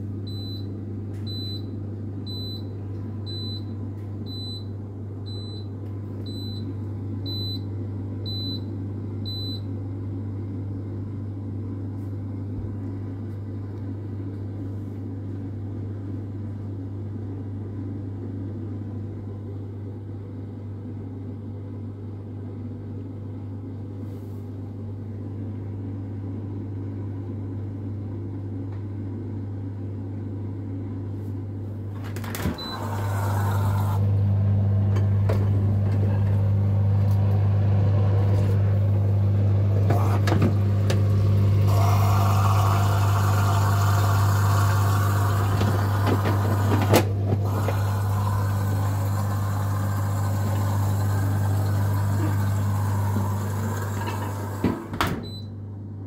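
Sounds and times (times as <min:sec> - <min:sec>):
dishwasher low hum: 0:00.0 - 0:56.0
dishwasher short high beeps: 0:32.5 - 0:34.0, 0:55.2 - 0:55.5.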